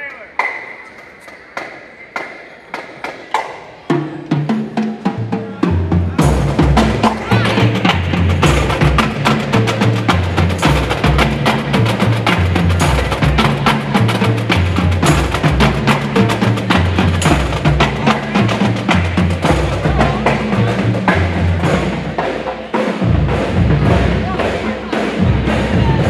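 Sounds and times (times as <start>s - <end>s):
marching band playing: 1.6s - 26.0s
snare and tenor drums: 3.0s - 26.0s.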